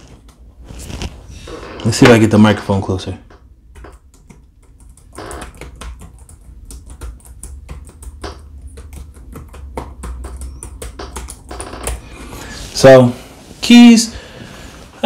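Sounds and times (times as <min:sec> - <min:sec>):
laptop keyboard typing: 0:03.6 - 0:12.1.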